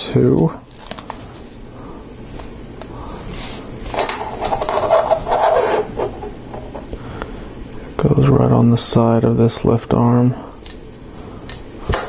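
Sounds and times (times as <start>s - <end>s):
soft rubbing and scraping: 3.3s - 6.8s.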